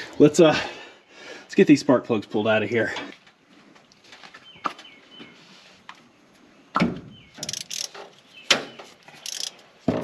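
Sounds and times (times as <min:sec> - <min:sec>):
socket ratchet clicking: 0:07.4 - 0:07.9, 0:09.2 - 0:09.6.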